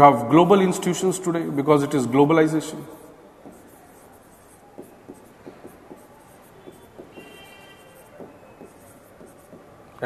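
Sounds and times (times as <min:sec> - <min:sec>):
stylus tapping on whiteboard glass: 0:03.4 - 0:09.8.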